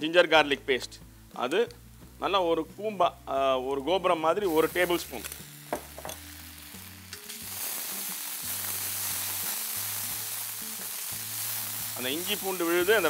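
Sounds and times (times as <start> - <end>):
paste sizzling in hot oil: 4.3 - 13.0.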